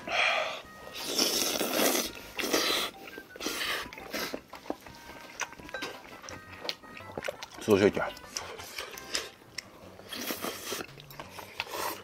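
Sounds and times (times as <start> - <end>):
chewing and chopstick clicks: 3.8 - 12.0.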